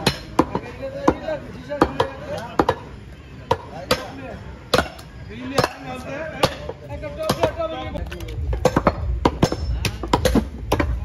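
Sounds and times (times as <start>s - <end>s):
cleaver chopping on wooden block: 4.7s - 5.0s.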